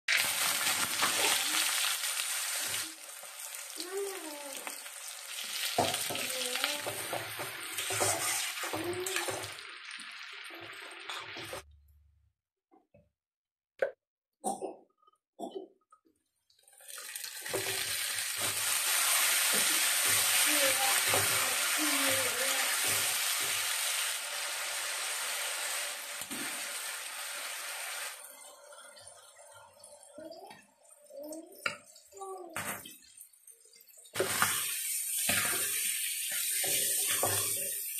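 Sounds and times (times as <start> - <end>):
onions sizzling in hot oil: 0.1 - 11.6, 16.8 - 30.5, 32.5 - 37.9
spatula stirring in wok: 6.8 - 9.3, 34.2 - 37.9.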